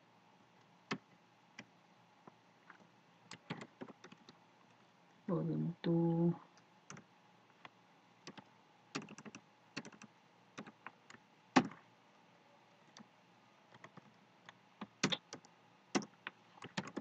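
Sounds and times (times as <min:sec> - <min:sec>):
computer keyboard typing: 0:03.3 - 0:04.4, 0:08.3 - 0:11.0, 0:13.7 - 0:14.1, 0:14.8 - 0:17.0.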